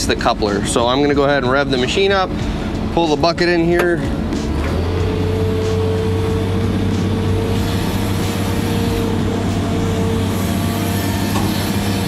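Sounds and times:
excavator diesel engine hum: 0.0s - 12.0s
hydraulic whine: 3.8s - 12.0s.

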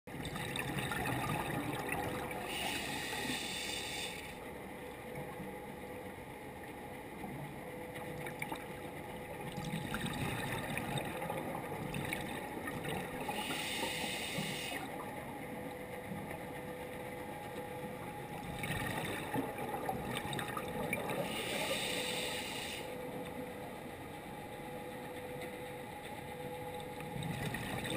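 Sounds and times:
exhaled bubbles rushing underwater: 0.1s - 4.0s, 7.8s - 15.4s, 17.8s - 22.5s, 26.8s - 27.9s
faint steady hum: 0.1s - 27.9s.

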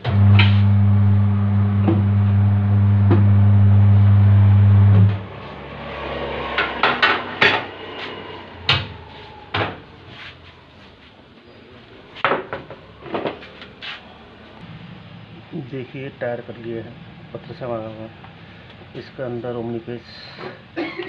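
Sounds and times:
electric motor humming: 0.0s - 10.1s.

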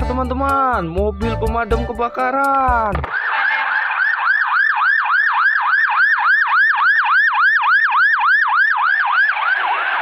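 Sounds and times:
fire engine siren yelping: 3.1s - 10.0s.

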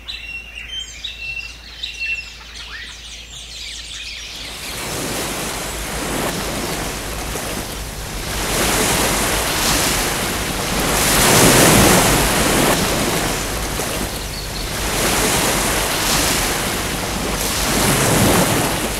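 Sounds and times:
surf-like rushing noise: 4.4s - 18.9s.

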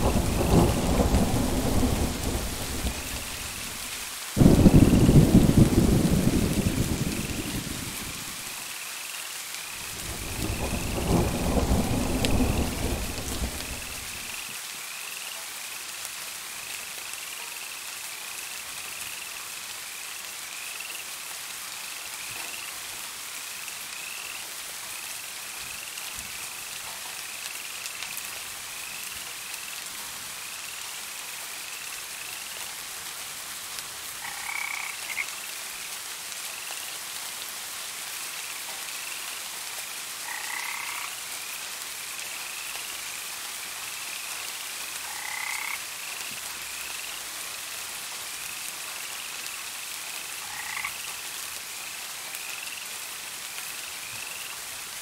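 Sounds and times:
steady rain: 0.0s - 55.0s
low frog calls: 34.2s - 35.3s, 40.2s - 41.1s, 50.4s - 51.0s
frogs chirping: 34.2s - 35.4s, 40.2s - 41.1s, 45.1s - 45.8s, 50.4s - 51.1s.

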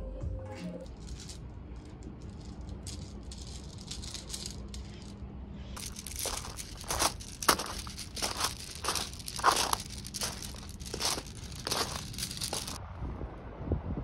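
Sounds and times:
footsteps crunching on gravel: 5.8s - 12.8s.

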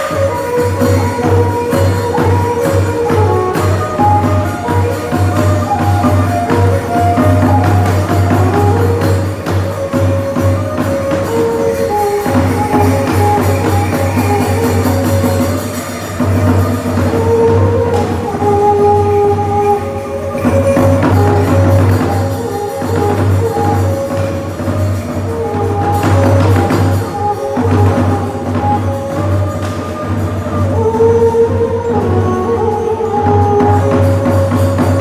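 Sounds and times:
held-note melody: 0.0s - 35.0s
light percussion: 0.0s - 35.0s.

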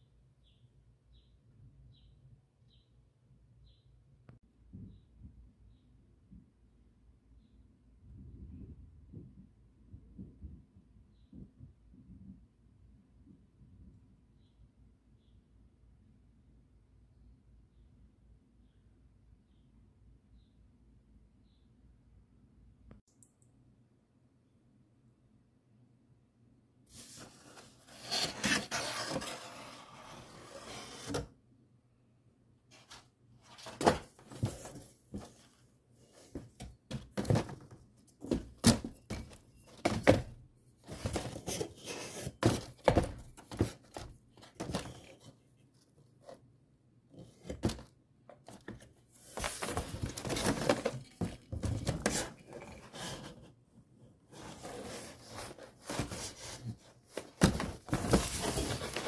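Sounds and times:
cardboard rustling and scraping: 26.9s - 31.3s, 32.7s - 46.4s, 47.1s - 53.6s, 54.2s - 59.0s.

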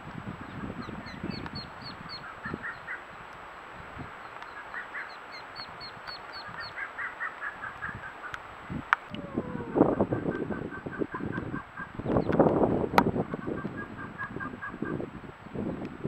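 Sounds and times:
ducklings peeping: 0.5s - 3.0s, 4.2s - 8.4s, 9.2s - 12.4s.

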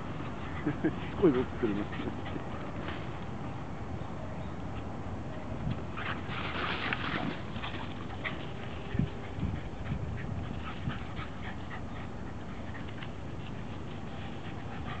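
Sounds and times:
dogs panting: 0.0s - 3.3s, 6.8s - 15.0s.

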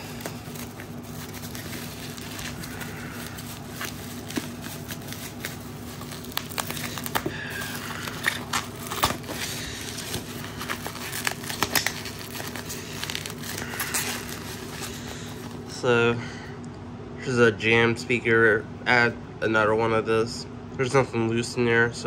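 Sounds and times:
packaging crinkling and rustling: 0.0s - 15.7s.

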